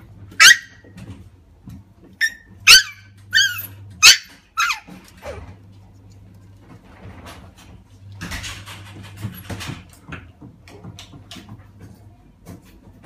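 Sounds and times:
puppy yipping: 0:00.3 - 0:00.9, 0:02.2 - 0:05.5.

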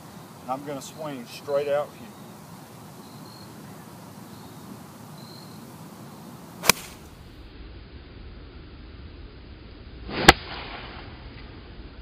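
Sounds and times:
outdoor hiss: 0:00.0 - 0:12.0
golf club striking ball: 0:06.6 - 0:07.1.

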